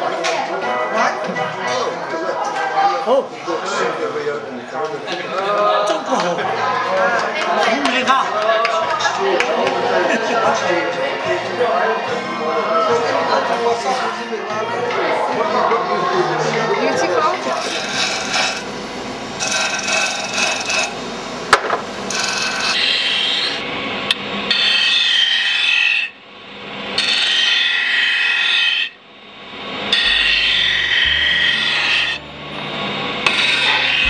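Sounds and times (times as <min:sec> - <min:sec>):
disc sander grinding wood: 0:16.6 - 0:23.8, 0:24.4 - 0:34.0.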